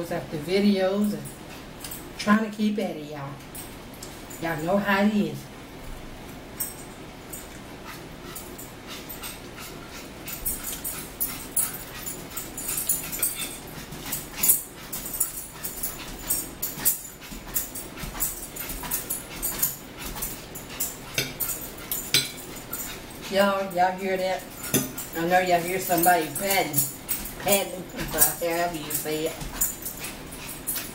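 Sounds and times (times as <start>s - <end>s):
dog panting: 6.6s - 30.9s.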